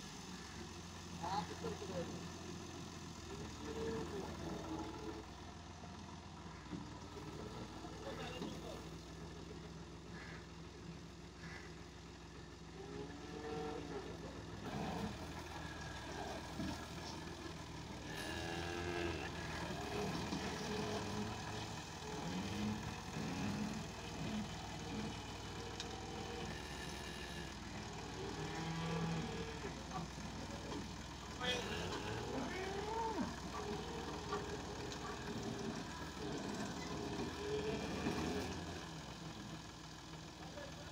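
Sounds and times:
tractor diesel engine idling: 0.0s - 40.9s
cattle mooing: 12.8s - 16.8s, 18.0s - 29.7s, 31.4s - 35.2s.

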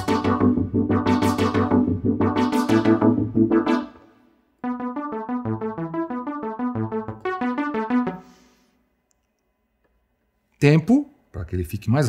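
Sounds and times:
synthesizer arpeggio: 0.0s - 8.4s.

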